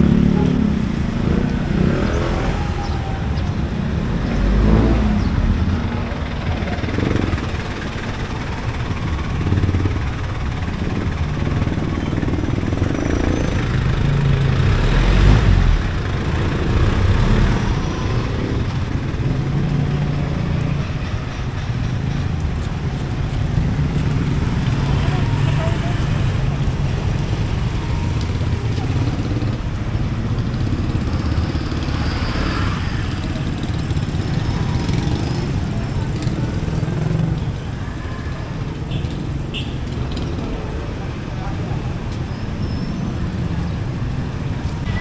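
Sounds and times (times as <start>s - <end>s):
low traffic rumble: 0.0s - 45.0s
vehicles passing close by: 0.0s - 45.0s.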